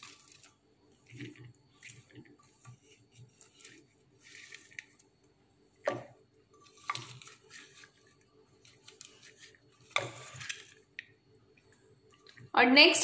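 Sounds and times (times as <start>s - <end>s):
popcorn rustling: 0.0s - 5.3s
spatula scraping metal pot: 6.6s - 8.1s, 8.8s - 10.9s.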